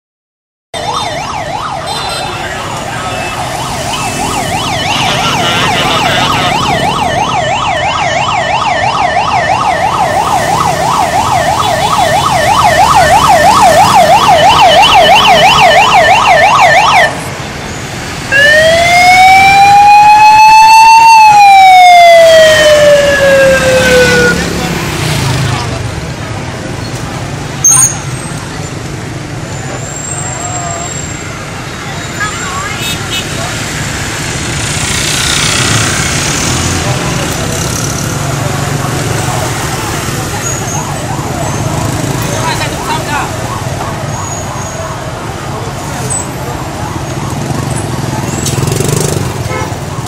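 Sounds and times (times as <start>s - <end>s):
siren yelping and wailing: 0.8s - 17.2s, 18.3s - 24.6s, 38.9s - 48.2s.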